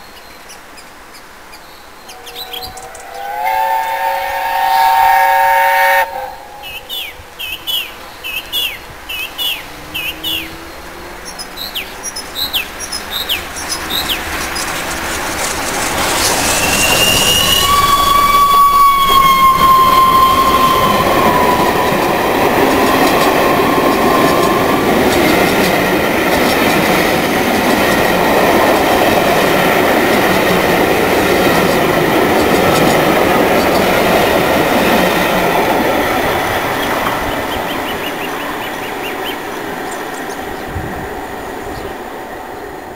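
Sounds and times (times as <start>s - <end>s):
bird chirps: 0.0s - 3.2s, 6.6s - 14.8s, 36.8s - 40.7s
steam train passing at speed: 2.0s - 42.9s
coaches clattering over rail joints: 10.8s - 18.4s
wheel squeal: 12.5s - 24.9s.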